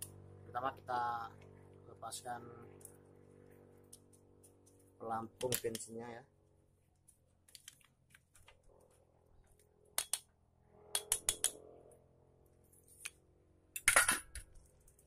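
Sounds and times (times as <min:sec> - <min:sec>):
small metal and plastic clicks: 0:05.4 - 0:06.0, 0:07.0 - 0:08.6, 0:09.5 - 0:10.3, 0:10.9 - 0:11.6, 0:13.8 - 0:15.0.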